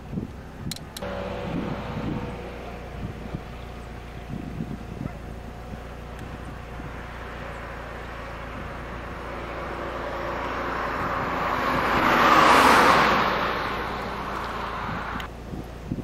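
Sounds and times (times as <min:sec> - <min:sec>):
car passing by: 0:01.0 - 0:03.9, 0:06.9 - 0:15.3.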